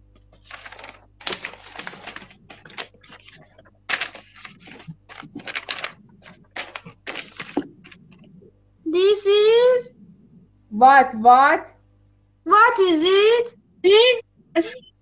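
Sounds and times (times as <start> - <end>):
book rustling and knocking: 0.3 - 8.3.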